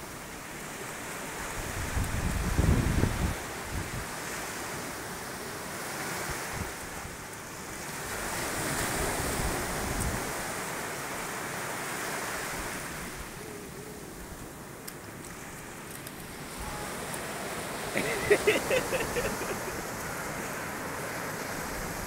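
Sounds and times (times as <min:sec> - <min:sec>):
ocean surf breaking on shore: 0:00.0 - 0:22.0
wind buffeting microphone: 0:01.5 - 0:04.1.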